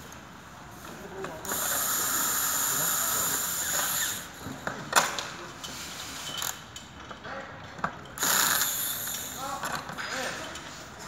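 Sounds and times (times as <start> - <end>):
cordless drill running: 8.2 - 9.4.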